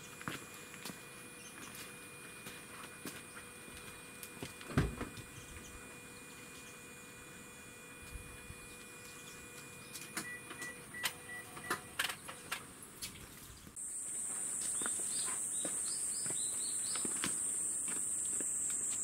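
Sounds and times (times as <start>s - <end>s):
high-pitched insect drone: 13.8s - 19.0s.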